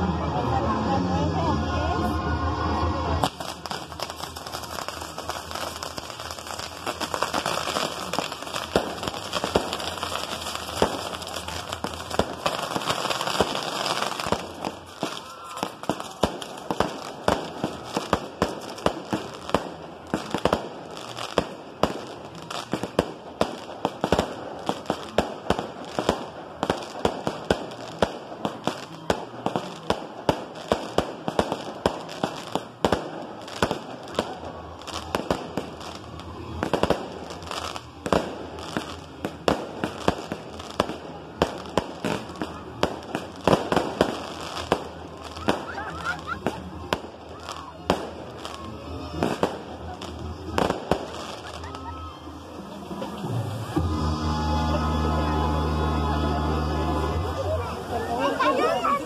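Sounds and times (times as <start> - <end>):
fireworks hissing crackle: 0.0 - 59.0
fireworks bangs: 2.5 - 59.0.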